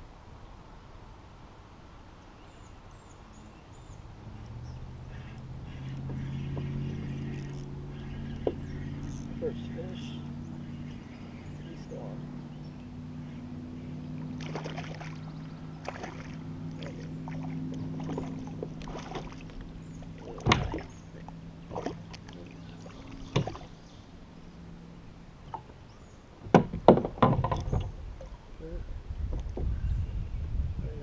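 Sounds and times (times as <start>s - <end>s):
steady low hum: 0.0s - 31.0s
fishing gear clicks and knocks: 6.0s - 7.7s, 8.3s - 10.2s.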